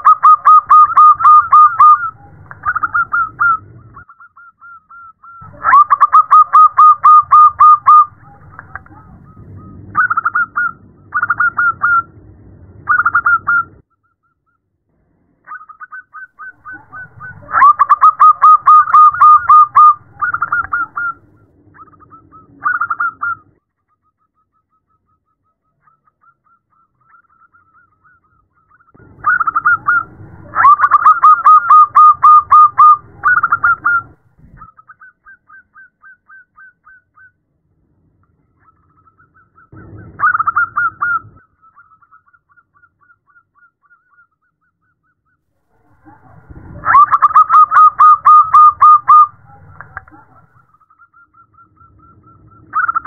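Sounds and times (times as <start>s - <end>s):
dove cooing trills: 0.0s - 12.1s, 15.5s - 23.5s, 28.8s - 37.3s, 38.7s - 44.3s, 45.8s - 53.0s.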